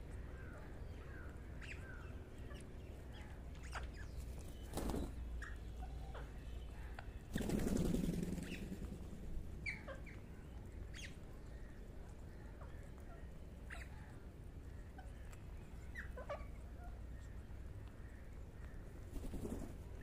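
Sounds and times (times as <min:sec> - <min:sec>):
parakeets calling: 0:01.0 - 0:04.2, 0:09.6 - 0:11.7
wings flapping: 0:04.2 - 0:05.2, 0:07.3 - 0:09.3, 0:19.1 - 0:20.0.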